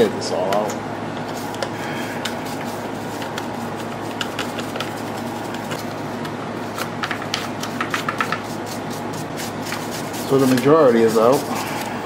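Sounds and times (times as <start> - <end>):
steady background hum: 0.0 - 12.0
brush scrubbing plastic case: 2.3 - 6.0, 6.7 - 11.8.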